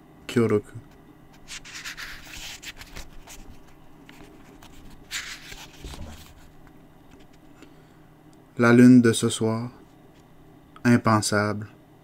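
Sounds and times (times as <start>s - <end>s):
book pages rustling: 1.4s - 7.6s.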